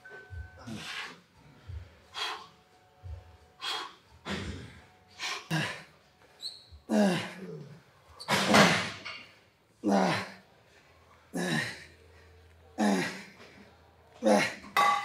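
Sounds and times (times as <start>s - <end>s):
person grunting: 6.9s - 7.7s, 12.8s - 13.3s, 14.2s - 14.7s.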